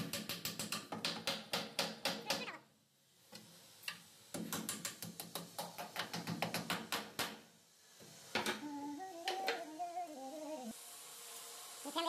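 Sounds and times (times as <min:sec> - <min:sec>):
hammer striking plywood panel: 0:04.4 - 0:07.4.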